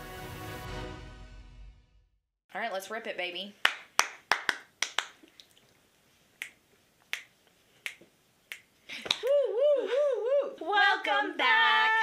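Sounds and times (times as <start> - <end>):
finger snaps: 6.4 - 9.4.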